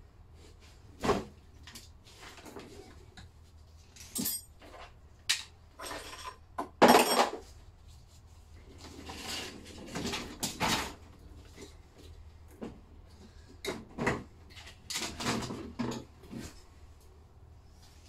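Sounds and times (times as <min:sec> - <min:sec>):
metal clanks and clinks: 0:04.0 - 0:04.8.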